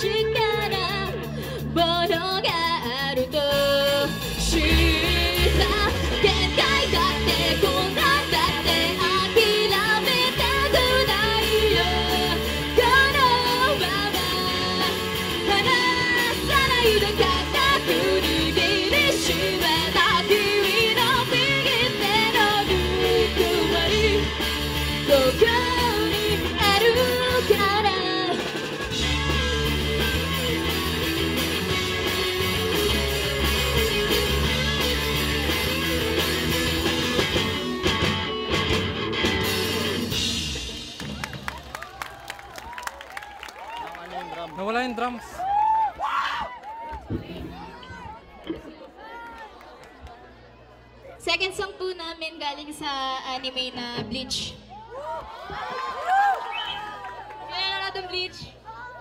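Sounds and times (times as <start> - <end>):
woman singing: 0.0 - 28.6
live rock band playing: 0.0 - 42.5.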